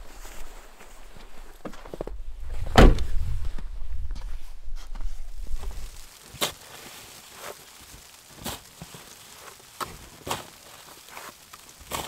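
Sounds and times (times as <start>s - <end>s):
tool crunching into packed snow: 4.2s - 12.0s.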